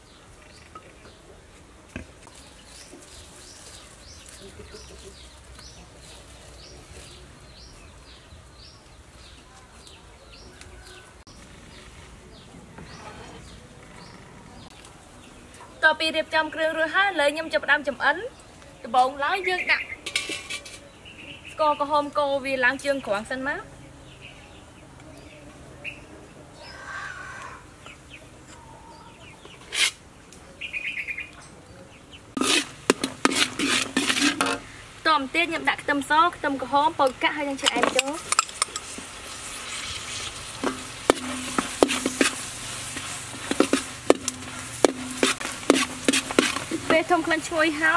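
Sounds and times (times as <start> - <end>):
soft rustle: 0.3 - 7.9
birds chirping and trilling: 2.3 - 20.1, 20.8 - 29.9, 30.5 - 32.4
metal utensil scraping a wok: 12.8 - 14.2, 20.0 - 20.9, 29.6 - 30.0, 32.3 - 34.9, 37.5 - 47.7.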